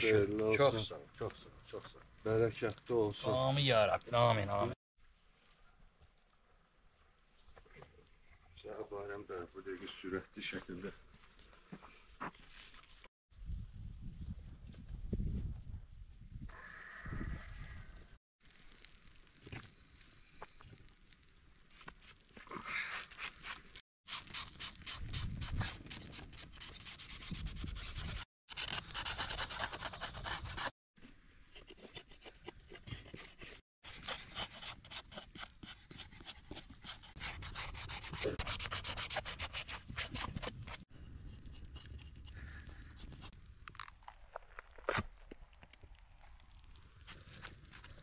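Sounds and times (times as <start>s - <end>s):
rasping scraping strokes: 31.5s - 43.4s.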